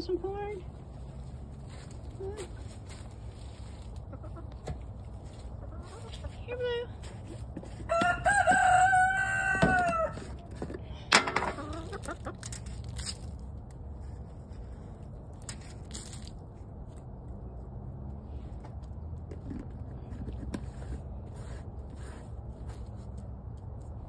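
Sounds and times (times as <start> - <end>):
rooster crowing: 7.9 - 10.3.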